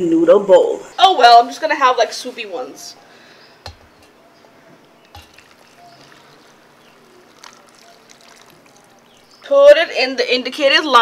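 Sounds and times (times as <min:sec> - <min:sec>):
water pouring into a paper cup: 0:03.7 - 0:04.1, 0:04.8 - 0:09.5.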